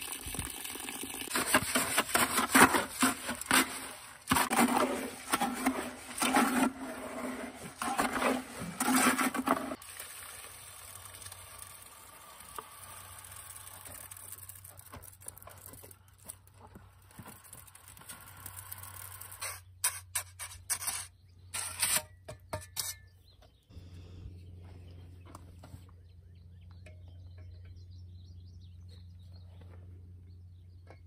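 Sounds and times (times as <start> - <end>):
wet concrete sliding from bucket: 0.4 - 16.4
trowel scraping wet concrete: 1.3 - 9.8, 17.1 - 23.1
steady low hum: 23.7 - 30.8.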